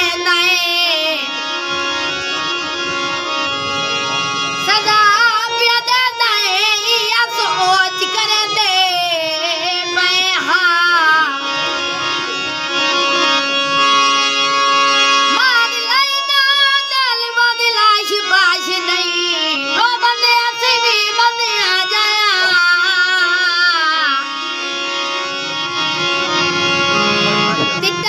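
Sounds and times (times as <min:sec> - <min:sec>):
boy singing: 0:00.0 - 0:01.5, 0:04.6 - 0:11.8, 0:15.2 - 0:24.6, 0:27.6 - 0:28.0
harmonium chords: 0:00.0 - 0:28.0.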